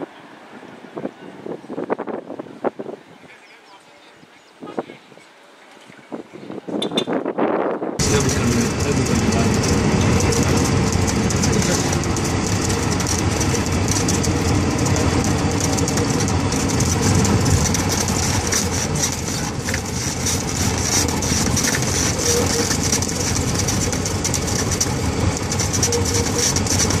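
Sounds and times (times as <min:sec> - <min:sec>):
propeller airplane engine running: 0:08.0 - 0:27.0.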